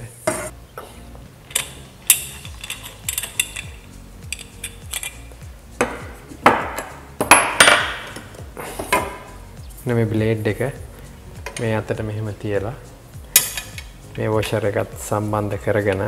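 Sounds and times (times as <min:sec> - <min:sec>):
clattering handling sounds: 0:01.4 - 0:06.9.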